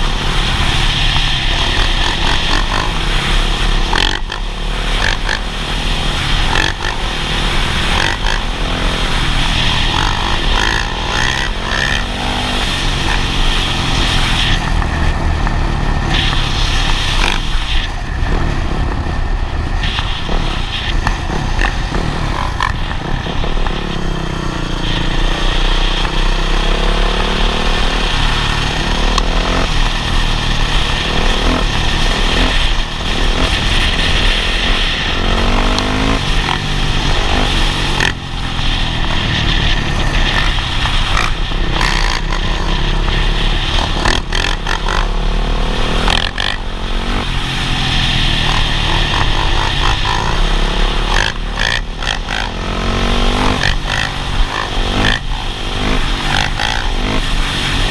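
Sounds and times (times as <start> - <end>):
dirt bike engines revving: 0.0 - 57.9.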